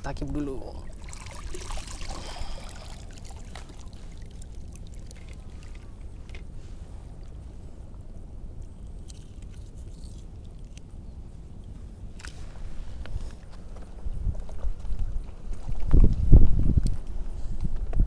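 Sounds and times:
steady low rumble: 0.0s - 18.0s
bucket splashing into water: 0.8s - 5.9s.

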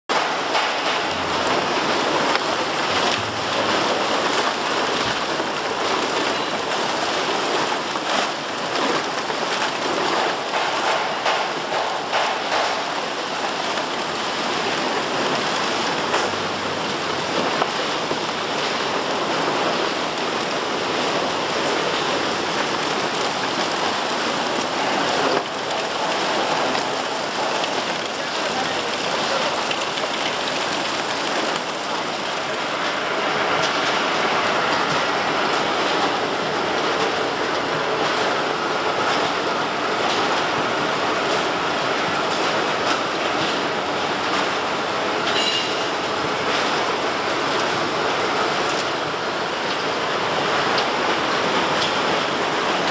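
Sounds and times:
machinery running: 0.1s - 52.9s
plastic bottles rattling: 0.7s - 16.5s, 19.0s - 32.8s.

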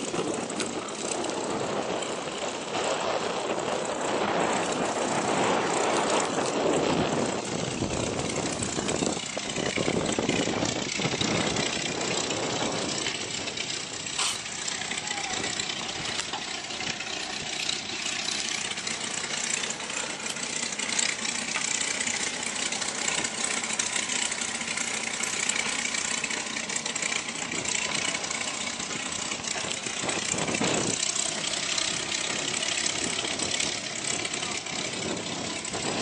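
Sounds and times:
engine rushing noise: 0.0s - 36.0s.

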